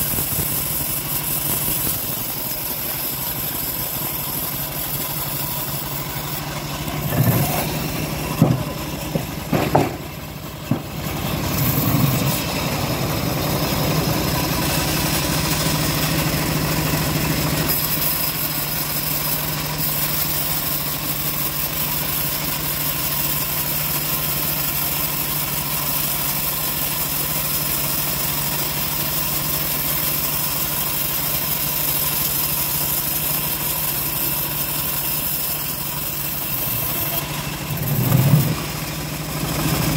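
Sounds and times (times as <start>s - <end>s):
bandsaw ripping a log: 0.0s - 10.2s, 33.0s - 38.7s
loud knocks and thumps: 7.0s - 12.6s.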